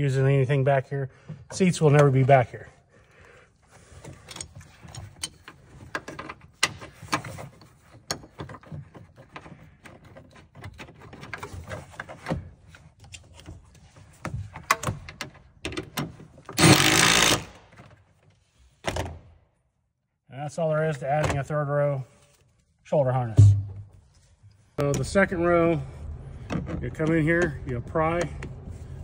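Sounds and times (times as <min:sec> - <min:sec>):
clicks and rattles of parts: 0:03.8 - 0:19.2
cordless power tool running: 0:16.6 - 0:17.6.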